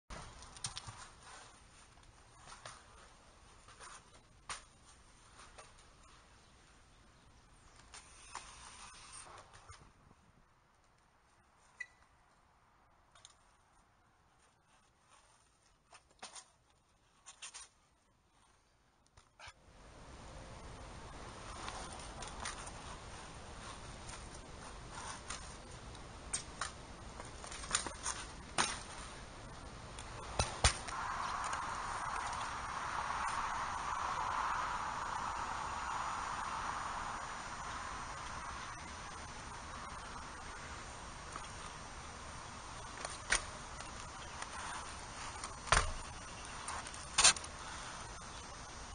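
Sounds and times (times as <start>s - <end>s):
faint steady hiss: 19.6s - 48.9s
bike clicking and knocking on concrete: 23.7s - 29.3s, 30.0s - 31.6s, 42.8s - 47.9s.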